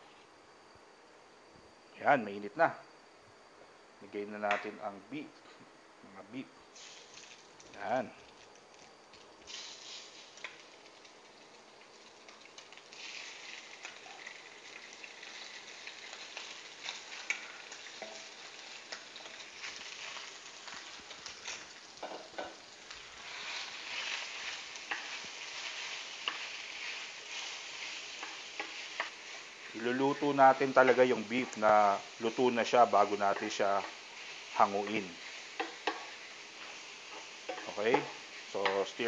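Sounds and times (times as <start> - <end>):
meat sizzling in frying pan: 6.7 - 39.0
utensils clicking against pan: 23.3 - 29.2, 34.8 - 38.9.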